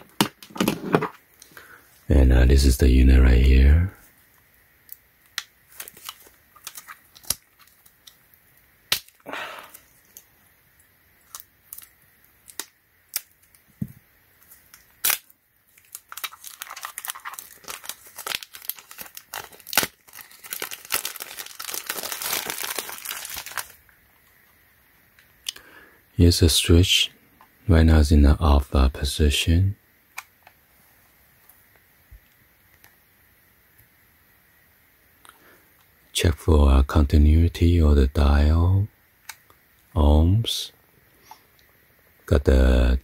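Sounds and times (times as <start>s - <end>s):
plastic wrap crinkling: 4.9s - 8.3s, 11.2s - 13.8s, 14.4s - 23.9s.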